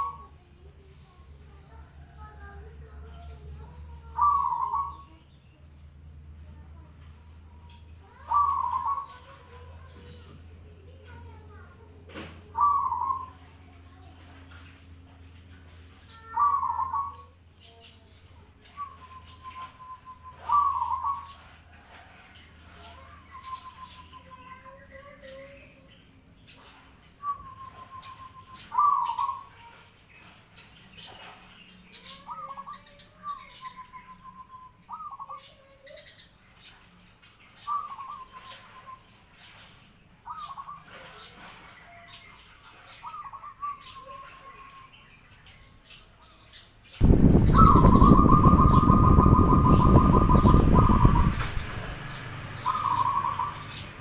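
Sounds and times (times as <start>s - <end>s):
dove cooing: 0.0s - 0.3s, 4.0s - 5.1s, 8.1s - 9.6s, 12.5s - 13.5s, 16.2s - 17.3s, 18.8s - 21.5s, 27.2s - 29.5s, 47.0s - 51.9s, 52.6s - 54.0s
loud rushing noise: 47.0s - 54.0s.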